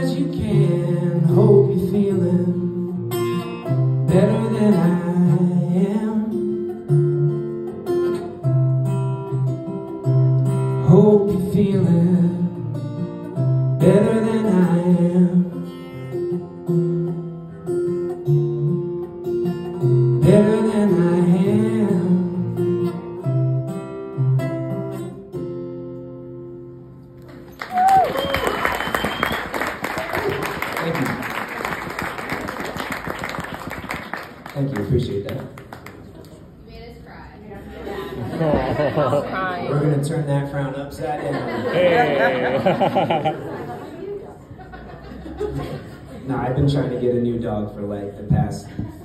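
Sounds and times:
man singing: 0.0s - 3.1s, 4.0s - 6.6s, 10.8s - 12.8s, 13.7s - 15.8s, 20.2s - 22.7s
acoustic guitar strumming: 0.0s - 27.2s.

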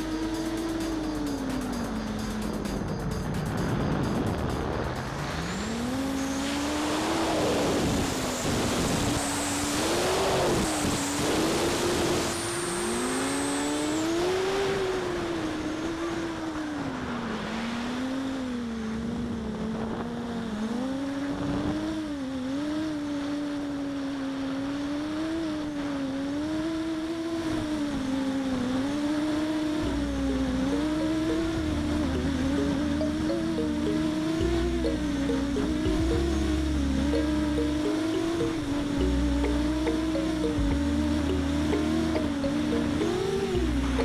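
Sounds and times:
drone motors whining: 0.0s - 16.6s, 18.5s - 44.0s
wind rush on microphone: 2.8s - 12.9s.

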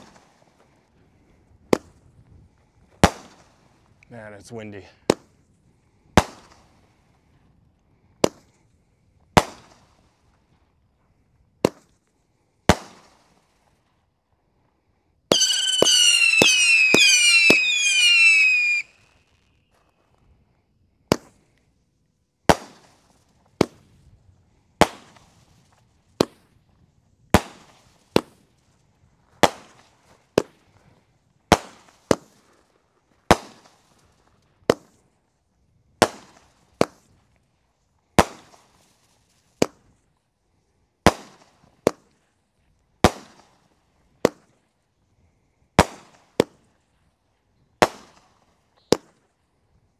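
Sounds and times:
fireworks bangs: 15.3s - 19.0s
shrill firework whistles: 15.3s - 19.8s.

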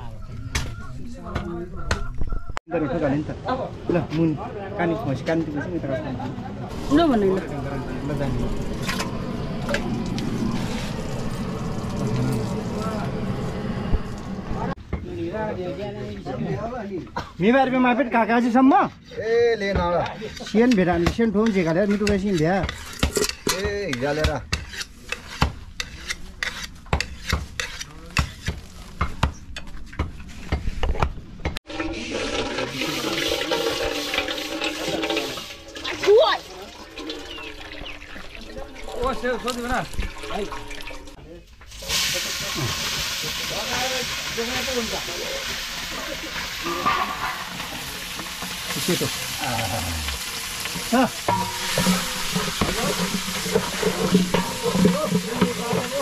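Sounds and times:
steady hiss: 41.7s - 56.0s.

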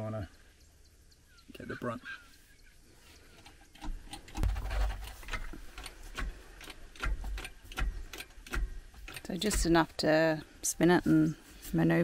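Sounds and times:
hydraulic jack clicking and knocking: 3.4s - 9.9s.

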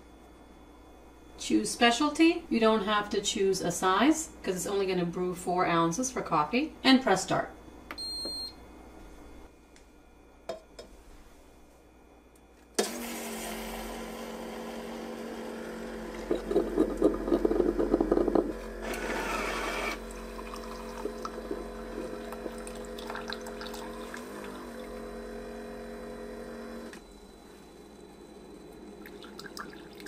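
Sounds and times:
coffee maker humming: 12.8s - 30.0s
milk frother whisking milk: 14.5s - 25.6s.

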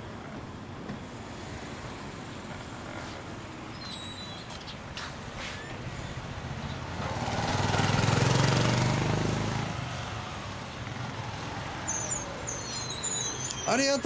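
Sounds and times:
vehicle engine passing by: 5.4s - 12.6s.

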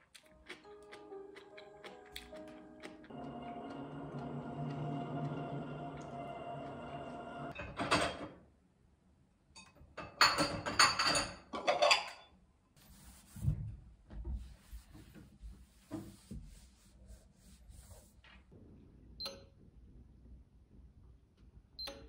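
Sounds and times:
music: 0.1s - 6.8s
ceramic dishes clattering: 10.1s - 12.3s.

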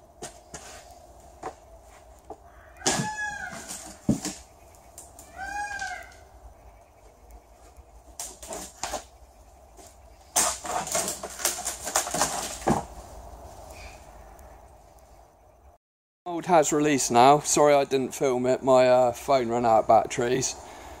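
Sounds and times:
fibreglass cracking and tearing: 10.3s - 12.8s.

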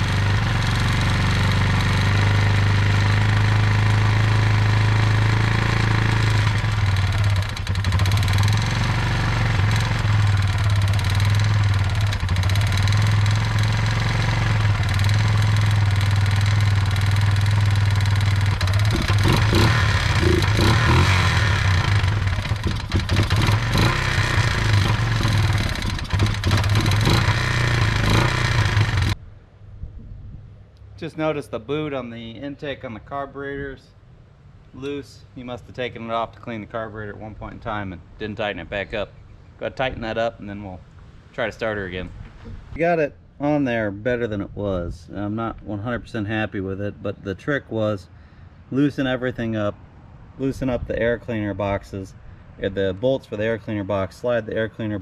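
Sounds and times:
atv engine running: 0.0s - 29.2s
electric starter: 4.6s - 29.2s.

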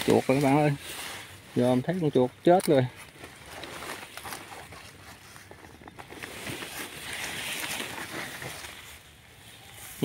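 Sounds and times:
weed stems rustling: 0.0s - 10.0s.

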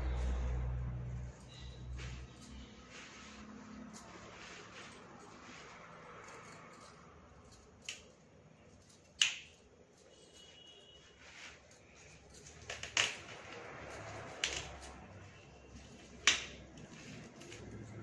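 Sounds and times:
stems snapping: 9.2s - 9.5s.

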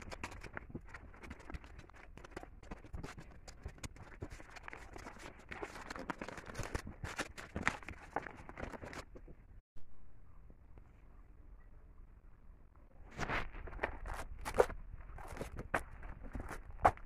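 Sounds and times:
paper rustling and crinkling: 0.0s - 9.4s, 13.2s - 17.0s.

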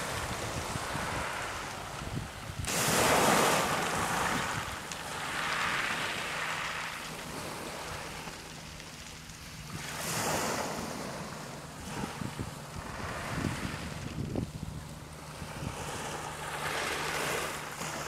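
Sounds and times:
waves washing over pebbles: 0.0s - 18.0s.

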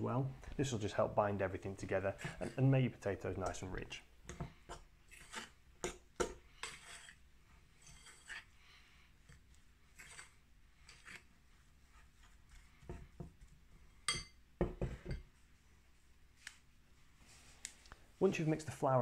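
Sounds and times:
dough mixed in glass bowl: 0.5s - 14.3s.

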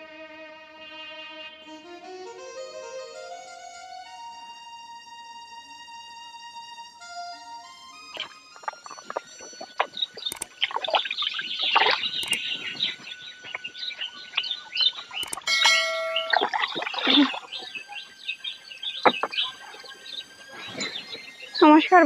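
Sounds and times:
small birds chirping: 7.6s - 22.0s
sharp clicks: 8.2s - 12.6s, 13.5s - 16.8s
short electronic chime: 15.2s - 18.0s.

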